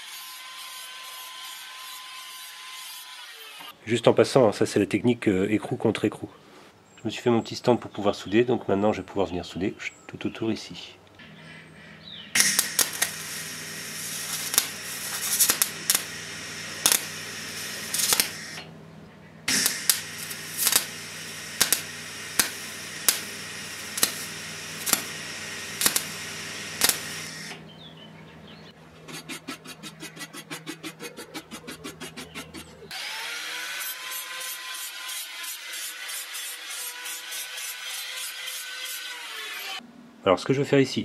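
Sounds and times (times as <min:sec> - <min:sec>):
steady low hum: 0:11.1 - 0:32.9
welding arc crackling and hissing: 0:12.3 - 0:18.7, 0:19.5 - 0:27.6
welding pops: 0:12.3 - 0:18.7, 0:19.5 - 0:27.7
fast clicks: 0:12.4 - 0:18.6, 0:19.5 - 0:27.6.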